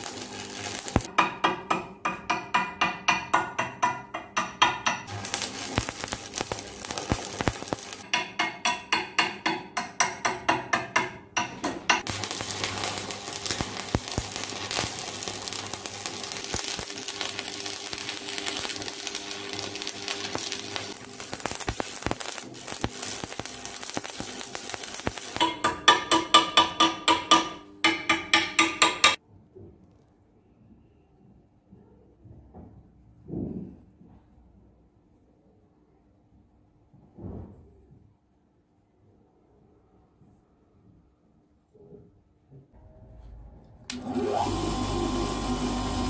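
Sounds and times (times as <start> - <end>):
arc welding crackle and sizzle: 0.0 - 1.1, 5.1 - 8.1, 12.0 - 27.1, 43.9 - 46.0
hammer tapping on steel punch: 1.1 - 5.1, 8.0 - 12.1, 25.4 - 29.2.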